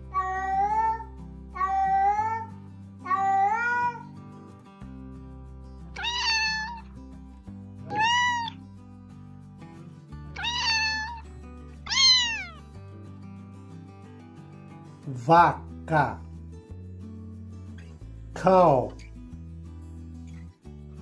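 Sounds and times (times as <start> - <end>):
background music: 0.0 - 21.0
cat meowing: 0.1 - 4.1, 6.0 - 6.9, 7.8 - 8.6, 10.4 - 11.2, 11.8 - 12.6.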